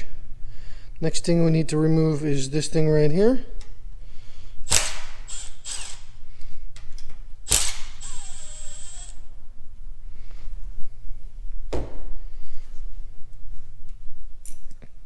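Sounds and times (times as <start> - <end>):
cordless drill motor whine: 5.3 - 6.0, 7.5 - 9.2.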